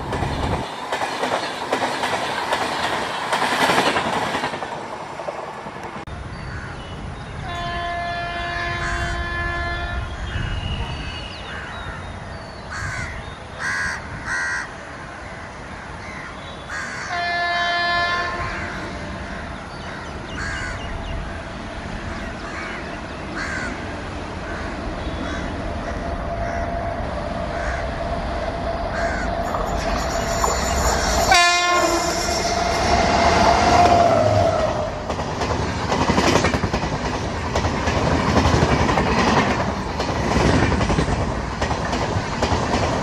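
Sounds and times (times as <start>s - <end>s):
train coaches rushing by: 0.0s - 6.1s, 17.1s - 43.0s
low rumble of oncoming train: 0.0s - 43.0s
locomotive horn blasts: 7.4s - 10.2s, 17.1s - 18.6s, 30.0s - 34.4s
crows cawing: 12.7s - 17.2s, 18.4s - 20.9s, 22.0s - 28.0s, 28.9s - 32.8s.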